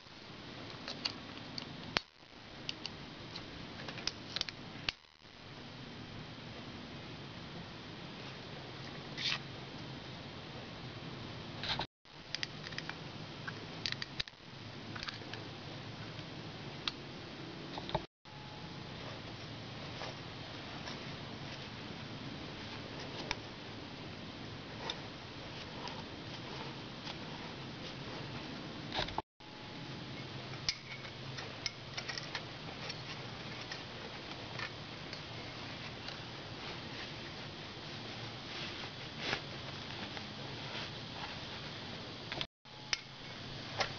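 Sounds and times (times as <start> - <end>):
steady low hum: 0.0 - 43.9
metal tools clicking and scraping: 30.2 - 33.8.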